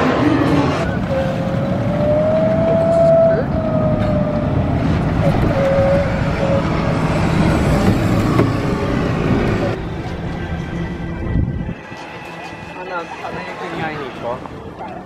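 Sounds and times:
car road and engine noise: 0.0 - 15.0.

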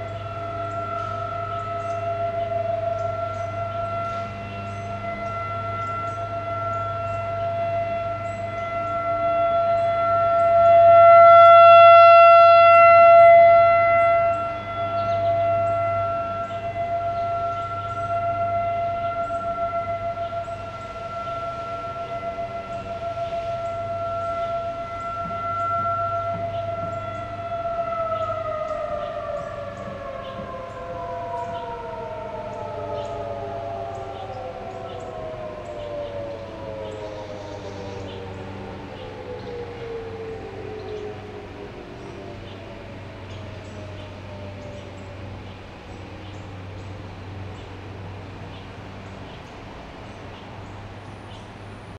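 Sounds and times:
warning siren steady tone: 0.0 - 51.9.

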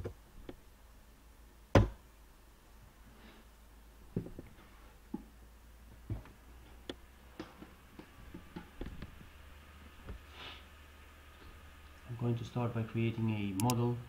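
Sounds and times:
faint steady hum: 0.0 - 14.0
small irregular clicks and taps: 6.1 - 9.2, 13.6 - 13.8.

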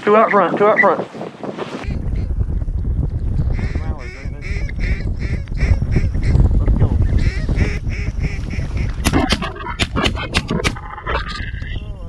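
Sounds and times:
wind rumble on microphone: 0.0 - 12.0
geese honking: 3.6 - 6.4, 7.1 - 11.2.

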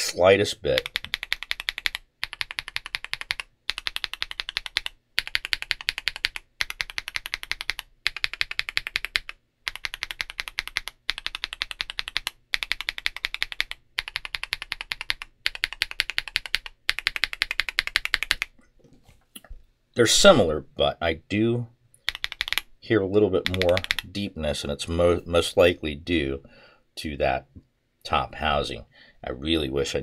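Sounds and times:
mechanical keyboard keystrokes: 0.8 - 18.5, 22.1 - 22.6, 23.4 - 24.1.

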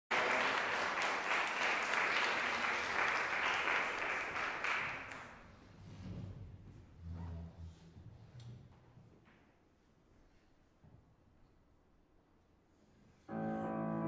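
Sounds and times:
audience applauding: 0.1 - 5.4.

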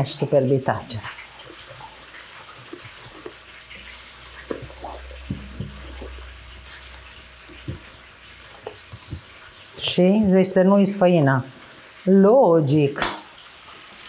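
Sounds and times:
batter squelching while stirred: 0.6 - 10.7.

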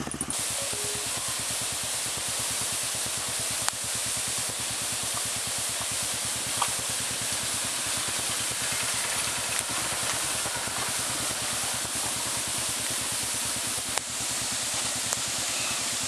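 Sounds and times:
motorcycle engines chugging: 0.0 - 3.7, 4.5 - 16.0
water running over rocks: 0.3 - 16.0.

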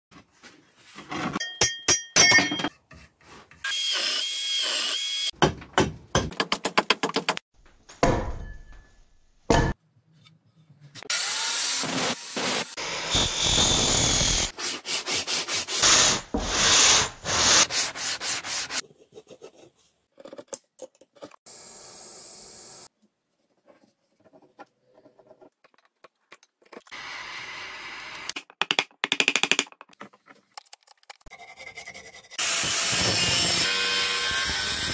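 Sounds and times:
angle grinder sanding wood: 11.1 - 18.8
tools working wood: 31.2 - 34.9.

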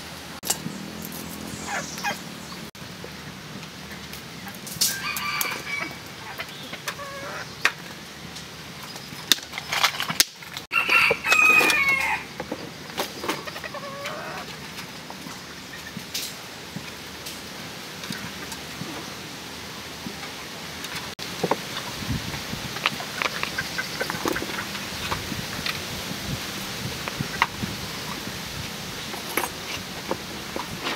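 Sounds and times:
rooster crowing: 4.9 - 6.1, 10.7 - 12.3.

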